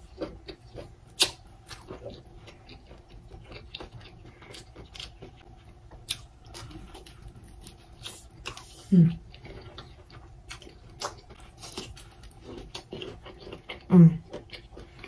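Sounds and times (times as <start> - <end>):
crunchy chewing: 0.0 - 15.0.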